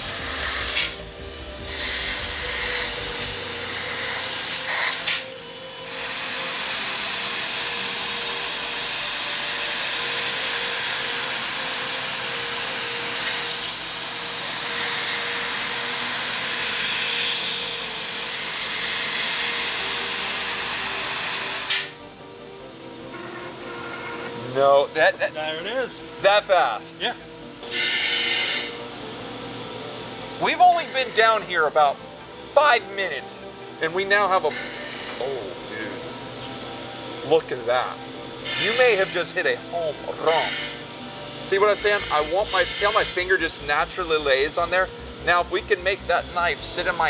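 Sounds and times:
laser cutting machine hissing: 0.0s - 22.0s, 27.6s - 28.9s, 30.4s - 31.7s, 34.2s - 36.0s, 38.4s - 47.0s
faint machine hum: 0.0s - 47.0s.

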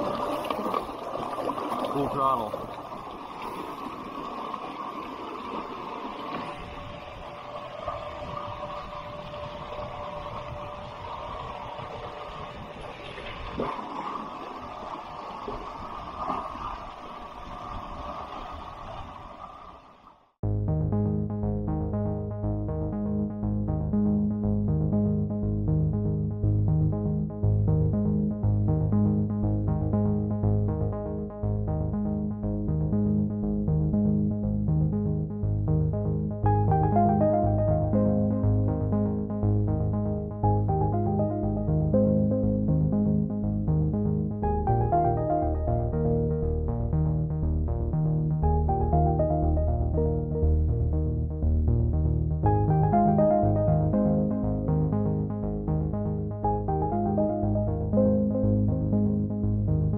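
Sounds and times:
electric outboard motor whining: 6.5s - 13.0s
electronic music: 20.4s - 59.9s.

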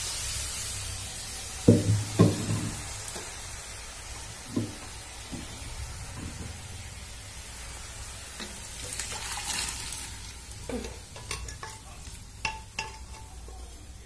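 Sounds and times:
curry sizzling in a wok: 0.0s - 14.0s.

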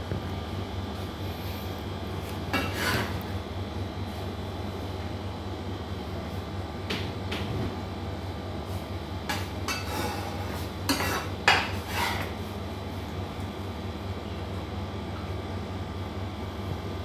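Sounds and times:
steady low hum: 0.0s - 17.0s
utensil scraping metal pots: 9.7s - 12.4s.

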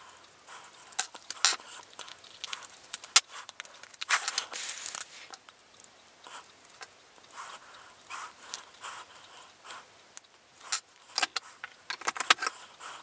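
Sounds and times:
plastic and metal clicking: 11.2s - 12.6s.

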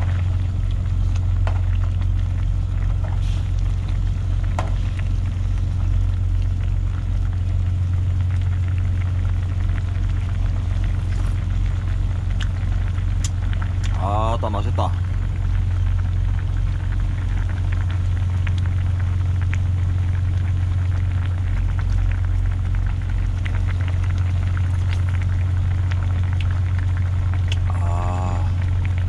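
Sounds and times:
idling truck hum: 0.0s - 20.2s
stew bubbling at a boil: 0.0s - 29.0s.

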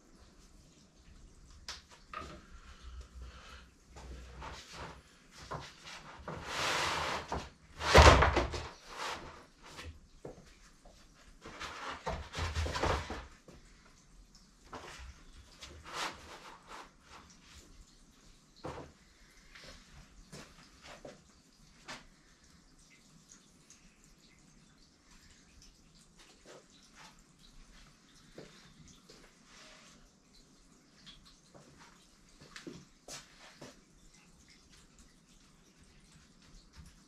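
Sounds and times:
objects knocking and rustling: 4.0s - 10.5s, 11.4s - 13.4s.

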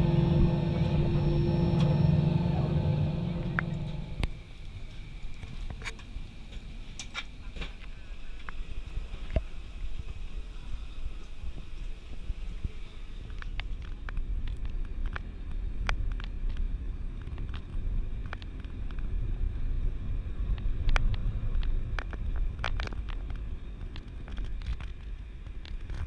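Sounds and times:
car interior road rumble: 0.0s - 4.7s.

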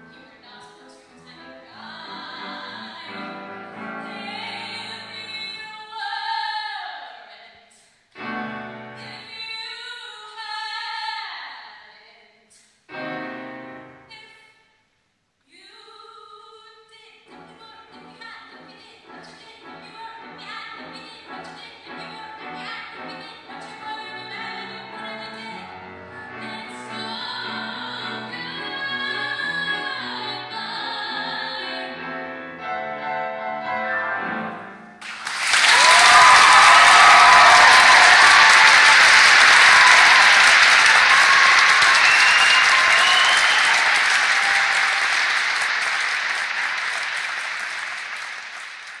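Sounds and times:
woman singing: 0.0s - 7.6s, 8.2s - 12.5s, 15.5s - 32.1s
piano accompaniment: 19.7s - 35.0s
audience applause: 35.0s - 49.0s.

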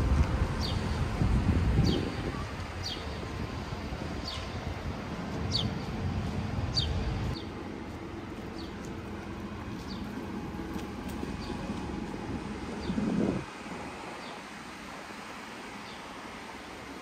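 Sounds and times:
street traffic rumble: 0.0s - 17.0s
wind: 0.0s - 17.0s.

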